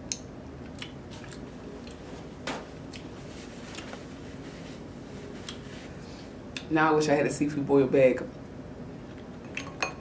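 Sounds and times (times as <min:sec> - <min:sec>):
lip smacks: 0:00.1 - 0:02.0.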